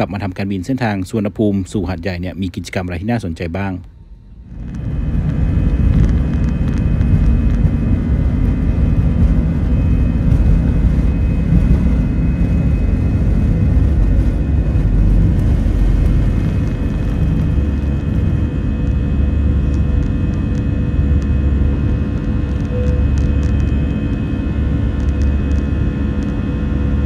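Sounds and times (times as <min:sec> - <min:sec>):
faint engine whine: 0:00.0 - 0:27.0
jet engines rumbling in cabin: 0:00.0 - 0:27.0.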